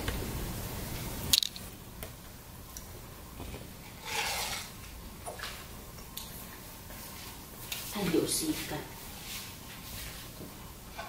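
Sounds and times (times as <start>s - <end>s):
soft squishing rustle: 3.4s - 10.4s.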